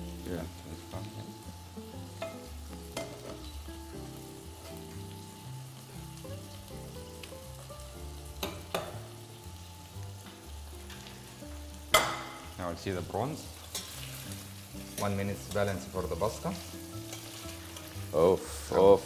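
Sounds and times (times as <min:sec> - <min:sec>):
background music: 0:00.0 - 0:19.0
prawns sizzling in a pan: 0:00.0 - 0:19.0
utensils clinking against pans: 0:13.6 - 0:19.0.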